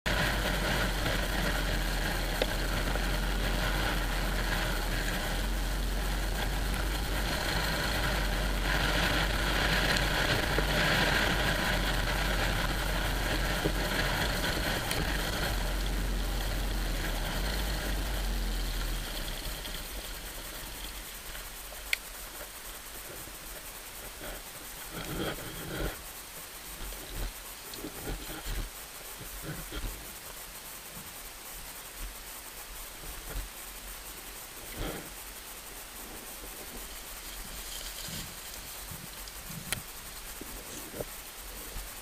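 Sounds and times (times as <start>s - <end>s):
motorcycle engines running: 0.0s - 30.0s.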